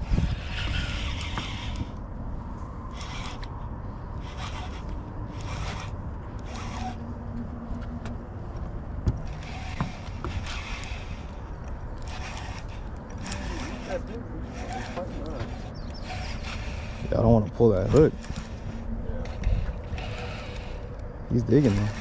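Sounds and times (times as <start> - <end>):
fishing reel whirring: 0.0 - 7.1, 9.2 - 22.0
sharp clicks: 14.6 - 17.0.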